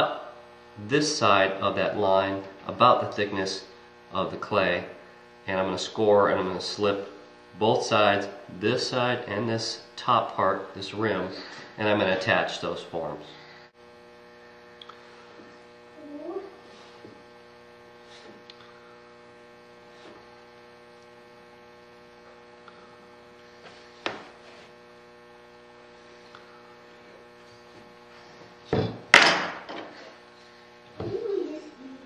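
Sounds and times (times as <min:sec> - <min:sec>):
electrical mains hum: 0:00.0 - 0:32.0.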